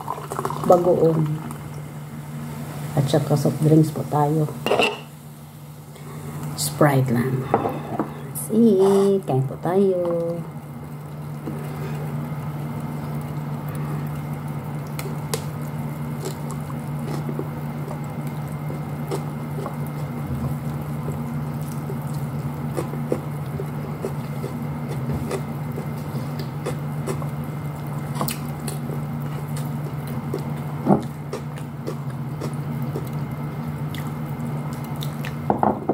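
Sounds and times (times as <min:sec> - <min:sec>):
steady low hum: 0:00.0 - 0:35.9
wet chewing sounds: 0:12.8 - 0:35.5.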